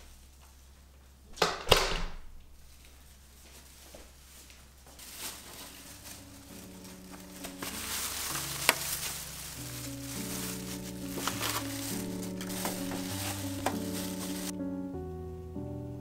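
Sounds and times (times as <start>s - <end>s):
plastic bag rustling: 2.6s - 14.6s
soft music: 4.7s - 16.0s.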